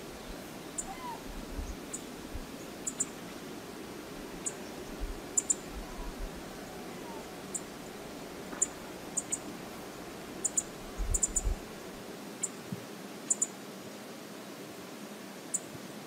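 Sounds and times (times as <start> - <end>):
river water flowing: 1.8 - 10.9.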